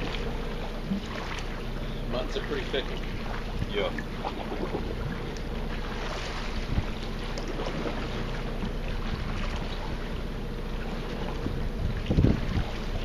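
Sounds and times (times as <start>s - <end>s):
low mechanical hum: 0.0s - 13.0s
wind noise: 11.4s - 13.0s.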